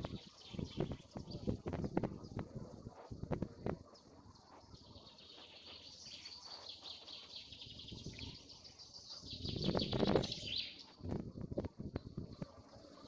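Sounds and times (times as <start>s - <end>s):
birds and insects chirping: 3.9s - 11.0s.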